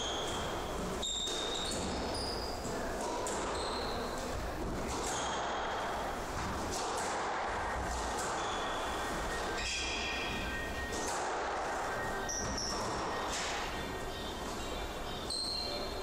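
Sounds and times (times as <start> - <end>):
shoes squeaking on wooden floor: 0.0 - 2.8
squash ball hitting rackets and walls: 0.0 - 13.8.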